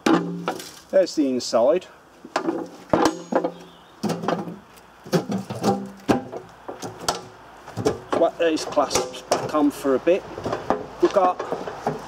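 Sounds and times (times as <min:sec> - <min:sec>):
metal knocks and clanks: 0:02.3 - 0:09.7, 0:10.4 - 0:12.0.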